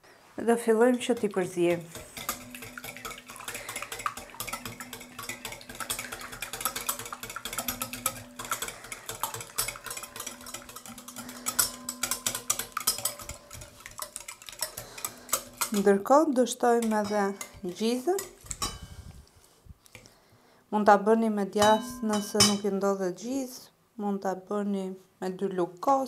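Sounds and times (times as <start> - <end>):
whisk clicking against bowl: 0.9 - 16.0, 16.7 - 18.9.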